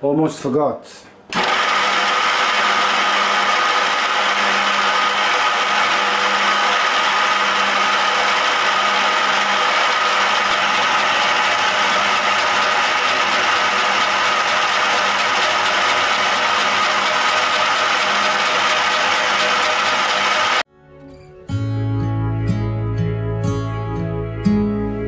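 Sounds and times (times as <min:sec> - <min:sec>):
milling machine motor whine: 0:01.3 - 0:20.6.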